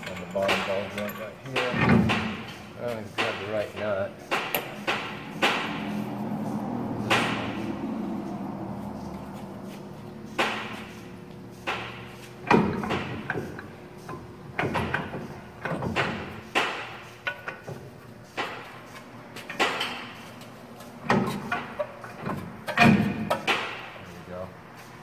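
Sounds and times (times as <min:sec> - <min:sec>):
metal clunks and knocks: 0:00.0 - 0:06.0, 0:06.9 - 0:07.8, 0:11.6 - 0:24.0.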